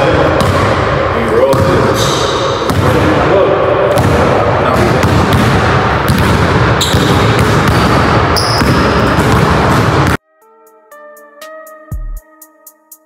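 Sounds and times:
basketballs bouncing on wood floor: 0:00.0 - 0:03.3, 0:03.9 - 0:10.2
echoing gym noise: 0:00.0 - 0:10.2.

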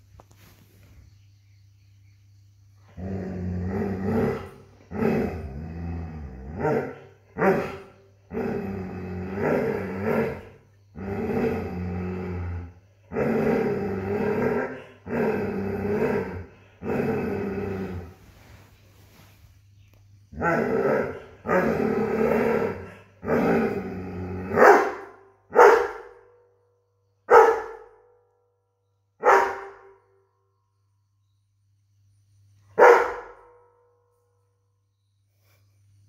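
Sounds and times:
dog growling: 0:02.9 - 0:18.7, 0:20.3 - 0:25.2
dog barking: 0:24.5 - 0:26.2, 0:27.3 - 0:28.0, 0:29.2 - 0:30.0, 0:32.8 - 0:33.6.

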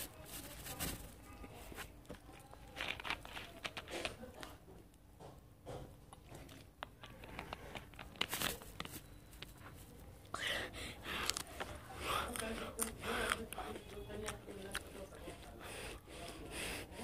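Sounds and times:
person chewing: 0:02.3 - 0:04.6, 0:06.0 - 0:08.9, 0:10.7 - 0:16.5
drinking from plastic bottle: 0:10.3 - 0:17.0.

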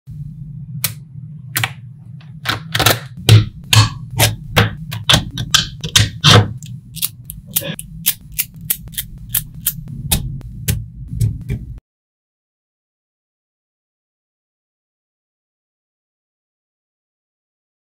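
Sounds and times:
low steady hum: 0:00.1 - 0:11.8.

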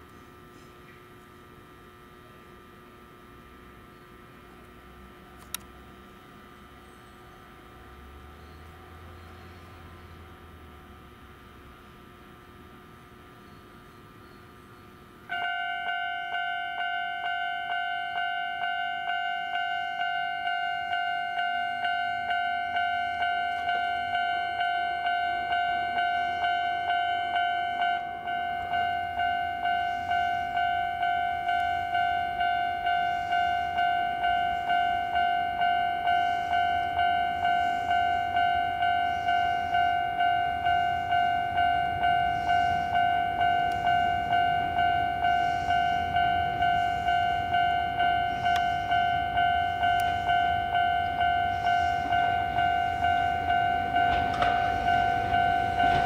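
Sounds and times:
low train rumble: 0:00.0 - 0:56.0
level crossing bell ringing: 0:15.4 - 0:56.0.

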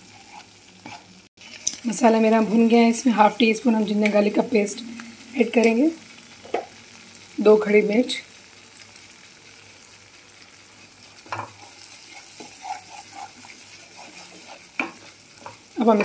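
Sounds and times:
spatula scraping pan: 0:00.0 - 0:01.7, 0:10.6 - 0:16.0
paste sizzling in oil: 0:00.0 - 0:16.0.

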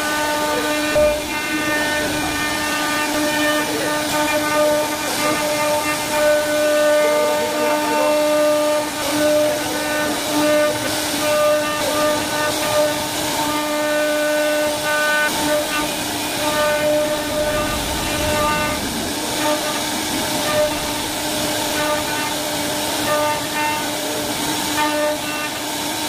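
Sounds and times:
bit cutting wood hiss: 0:00.0 - 0:26.0
router spindle whine: 0:00.0 - 0:26.0.

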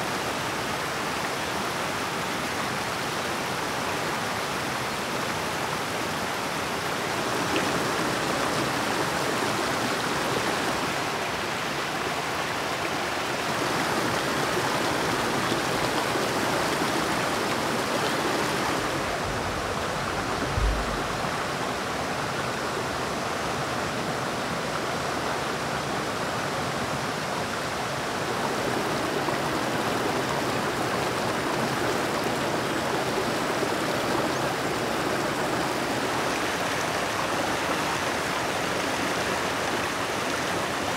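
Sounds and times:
river rushing over rocks: 0:00.0 - 0:40.9
brief low thump: 0:19.2 - 0:21.5.

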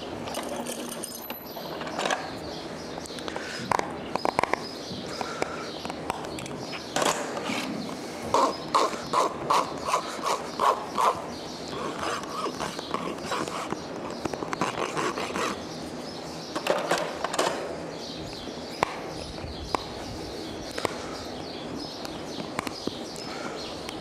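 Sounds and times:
hoof rasp strokes: 0:07.4 - 0:13.8, 0:14.6 - 0:15.7.

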